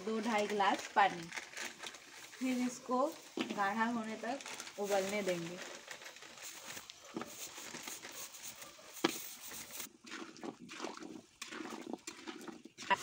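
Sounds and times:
syrup bubbling in a pan: 0:09.0 - 0:13.0.

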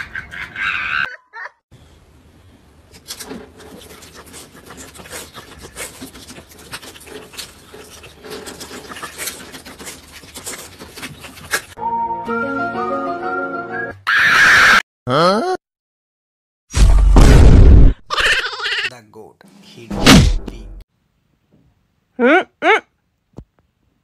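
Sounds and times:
music: 0:11.8 - 0:14.0.

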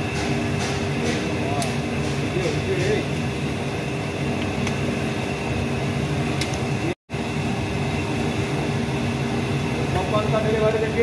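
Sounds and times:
popcorn roaster machine drone: 0:00.0 - 0:11.0.

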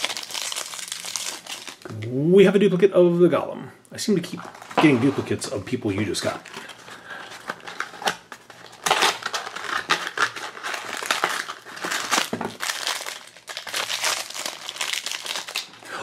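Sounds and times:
cardboard packaging tearing: 0:00.0 - 0:01.9, 0:06.3 - 0:15.8.

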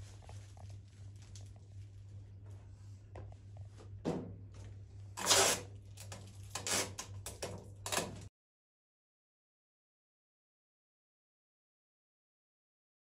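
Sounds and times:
steady low hum: 0:00.0 - 0:06.5.

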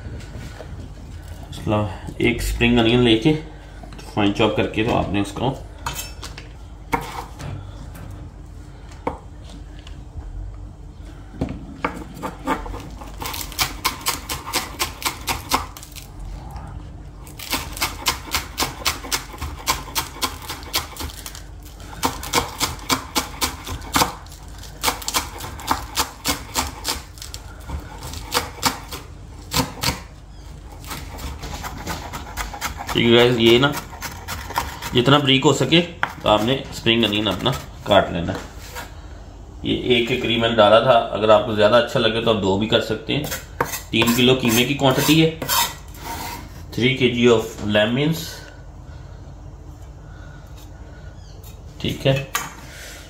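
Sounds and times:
knife chopping on wooden board: 0:22.0 - 0:24.2, 0:24.8 - 0:27.0, 0:27.7 - 0:30.1, 0:30.8 - 0:35.1.

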